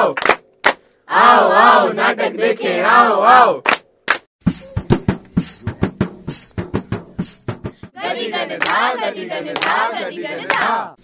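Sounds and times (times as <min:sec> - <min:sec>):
group clapping hands: 0:00.0 - 0:00.9, 0:03.6 - 0:04.3, 0:08.2 - 0:11.0
voices chanting in unison: 0:01.1 - 0:03.6, 0:07.9 - 0:11.0.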